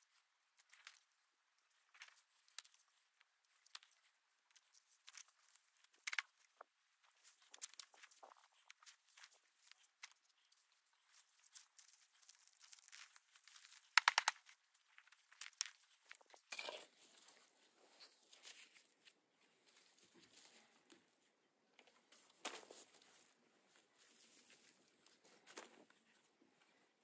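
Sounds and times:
rustling: 0.0 - 27.0
weeds and roots being pulled: 1.7 - 20.8.

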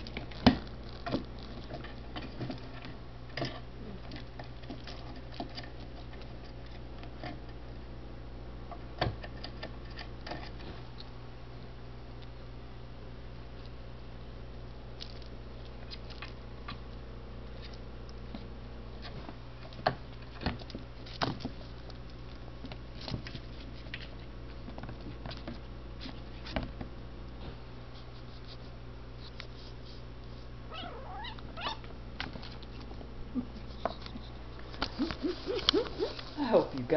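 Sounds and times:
kitten calling: 30.7 - 31.9, 34.9 - 36.4.

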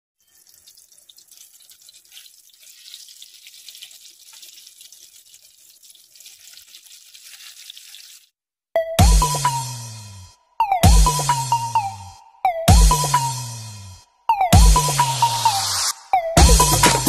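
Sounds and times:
food sizzling in hot oil: 0.2 - 8.4
loud electronic music: 9.0 - 17.0.

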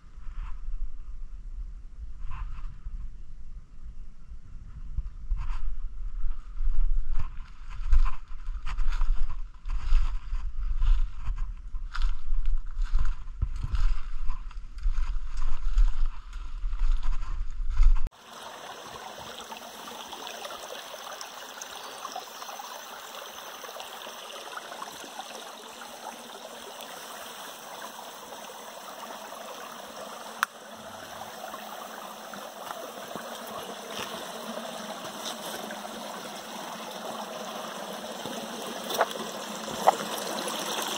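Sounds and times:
stream flowing over rocks: 18.1 - 40.9
footsteps in leaf litter: 35.0 - 35.7.

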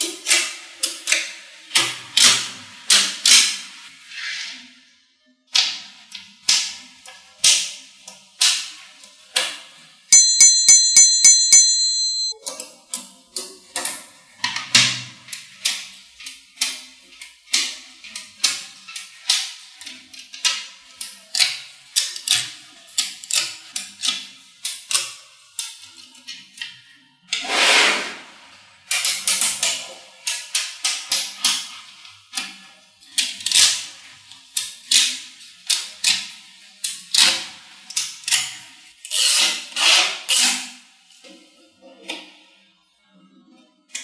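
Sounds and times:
bright ringing chime notes: 10.2 - 12.4.

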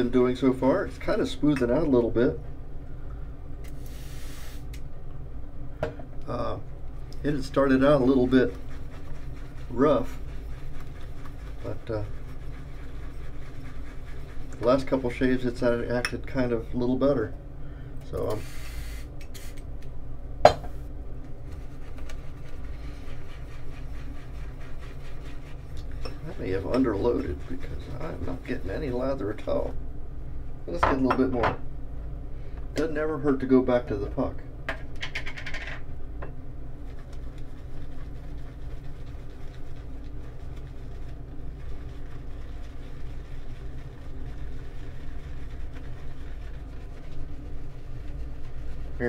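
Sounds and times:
steady low hum: 0.0 - 49.0
shaving brush swirling in a bowl: 7.2 - 17.2, 21.4 - 29.7, 36.8 - 49.0.

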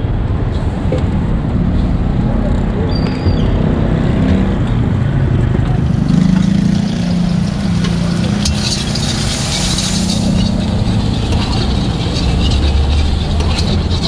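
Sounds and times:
steady low rumble: 0.0 - 14.0
onions frying hiss: 5.9 - 14.0
metal ladle scraping wok: 6.1 - 14.0.

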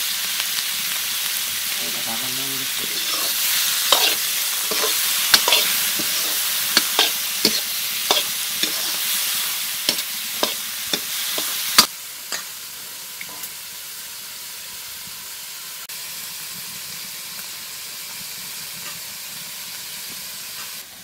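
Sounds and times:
food sizzling in oil: 0.0 - 21.0.

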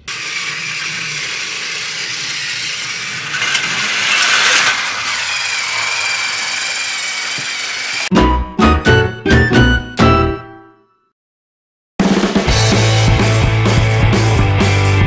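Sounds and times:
toy train motors whirring: 0.0 - 8.1.

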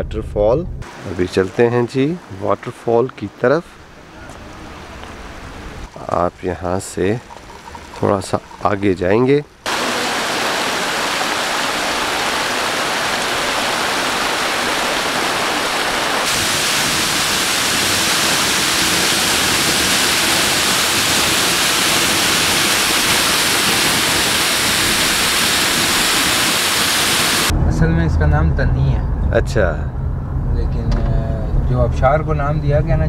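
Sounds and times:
waterfall rushing into pool: 0.8 - 3.4, 9.6 - 27.5.

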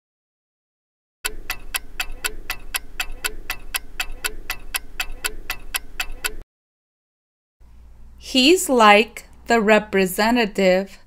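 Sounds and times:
clock ticking quickly: 1.2 - 6.4.

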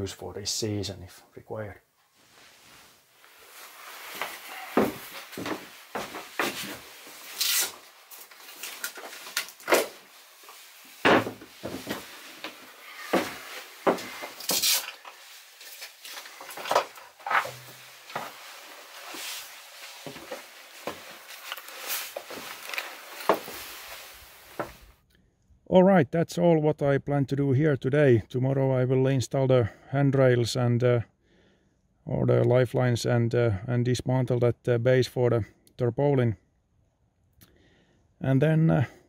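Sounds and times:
wooden fittings handled: 3.3 - 24.9.

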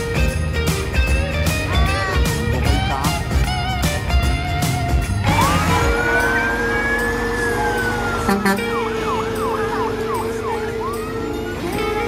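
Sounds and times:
electronic siren wailing and yelping: 5.3 - 12.0.

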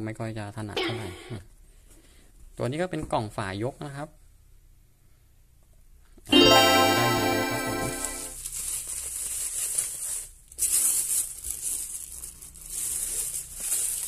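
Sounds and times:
ringing musical chord: 6.3 - 8.4
plastic bag and bubble wrap crinkling: 8.3 - 14.0.

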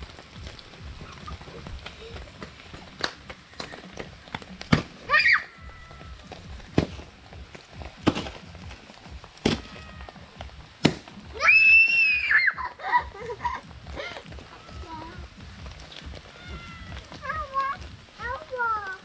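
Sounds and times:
wood fire popping and cracking: 0.0 - 19.0.

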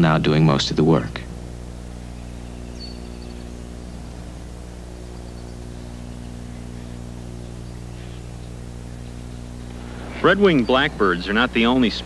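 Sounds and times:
low electrical hum: 0.0 - 12.0
faint high bird chirp: 2.0 - 9.6.

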